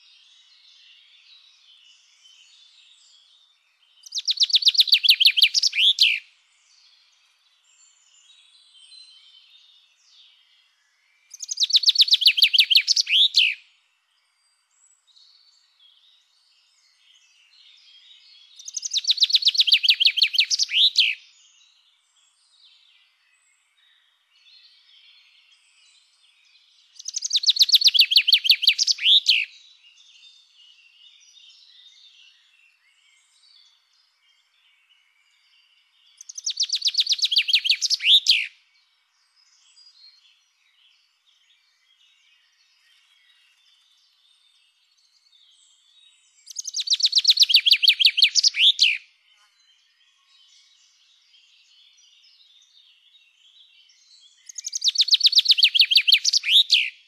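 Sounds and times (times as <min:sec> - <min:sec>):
small birds twittering: 0:00.0 - 0:57.0
chaffinch singing: 0:03.9 - 0:07.1, 0:11.3 - 0:13.7, 0:16.6 - 0:21.8, 0:24.5 - 0:34.6, 0:35.3 - 0:38.6, 0:39.3 - 0:57.0.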